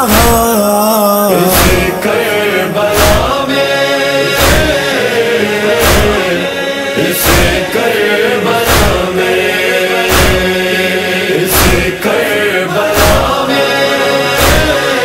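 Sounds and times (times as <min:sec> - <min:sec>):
chorus of voices chanting: 0:01.3 - 0:15.0
deep regular beat: 0:01.6 - 0:02.0, 0:05.8 - 0:06.3, 0:13.0 - 0:13.4.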